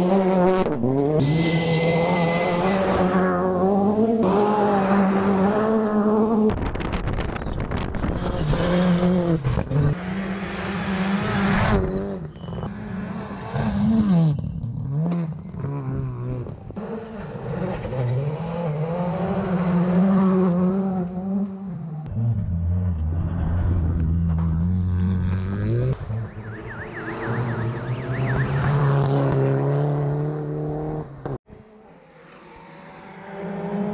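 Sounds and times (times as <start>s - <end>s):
rally car engines revving: 0.0s - 6.5s, 7.6s - 33.9s.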